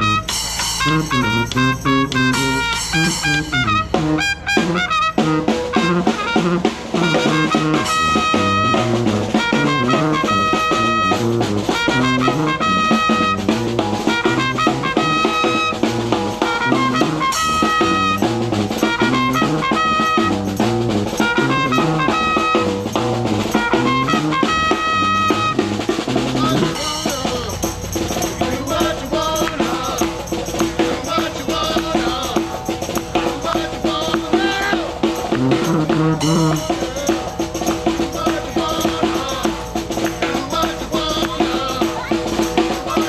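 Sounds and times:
snare drum: 0:00.0 - 0:43.0
sousaphone bass line: 0:00.0 - 0:43.0
trumpet: 0:00.0 - 0:43.0.

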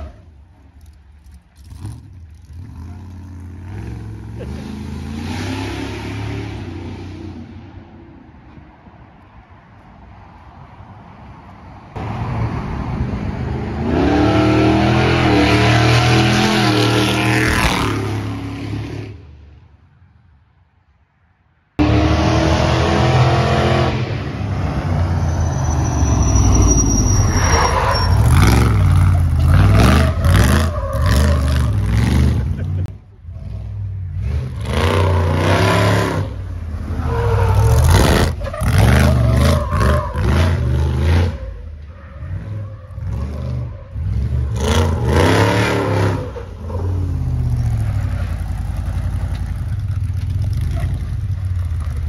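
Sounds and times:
truck engine revving: 0:13.0 - 0:19.2, 0:21.8 - 0:52.0.

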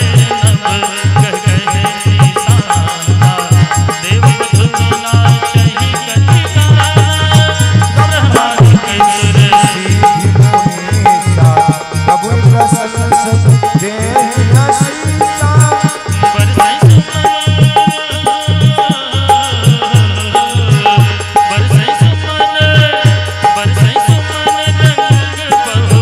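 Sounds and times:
hand drum rhythm: 0:00.0 - 0:26.0
harmonium melody: 0:00.0 - 0:26.0.

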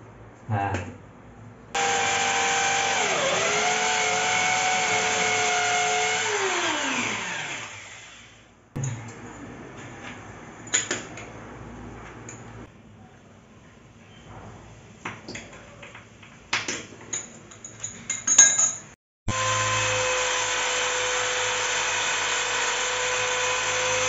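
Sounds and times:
electric drill boring into tile: 0:01.8 - 0:08.4, 0:19.3 - 0:24.0.

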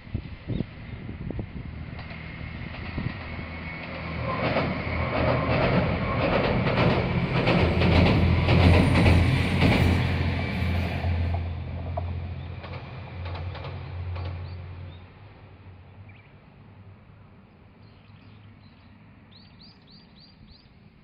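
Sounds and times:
train wheels clattering over rail joints: 0:01.9 - 0:15.0.

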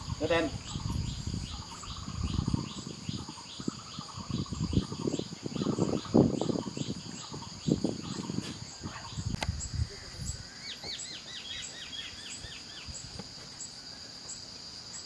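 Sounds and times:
high insect chirp: 0:00.0 - 0:15.0
insects droning: 0:00.0 - 0:15.0.

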